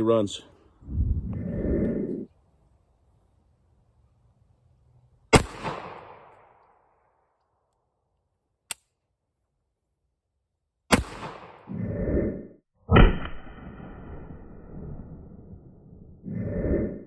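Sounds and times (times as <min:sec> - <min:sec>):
low swelling sound: 0:00.8 - 0:02.3
pistol shots with echo: 0:05.3 - 0:06.4.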